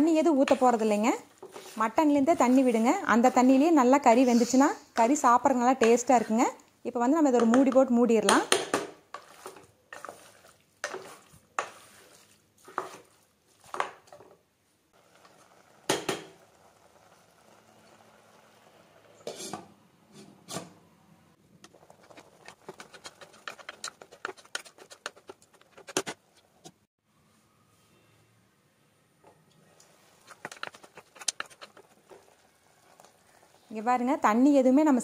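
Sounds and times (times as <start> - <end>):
metal pot and utensils clinking: 9.2 - 12.0.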